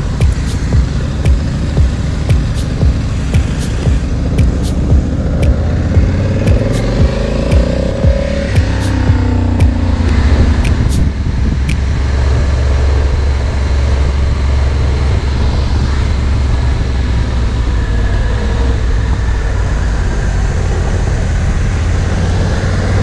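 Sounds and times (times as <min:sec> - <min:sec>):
motorcycle engine rumble: 0:00.0 - 0:16.8
road and wind noise: 0:00.0 - 0:23.0
sharp click: 0:00.2 - 0:01.5, 0:02.3 - 0:05.6, 0:06.4 - 0:08.0, 0:08.6 - 0:11.1.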